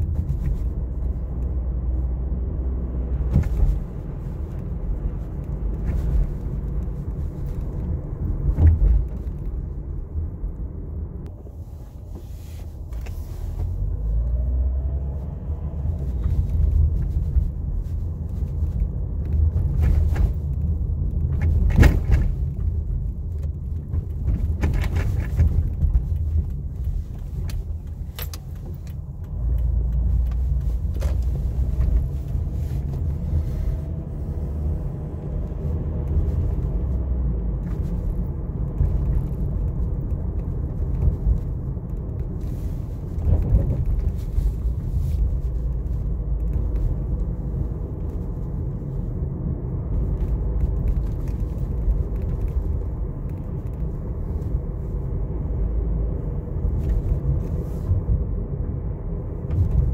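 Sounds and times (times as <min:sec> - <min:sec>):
car engine and road rumble: 0:00.0 - 0:59.9.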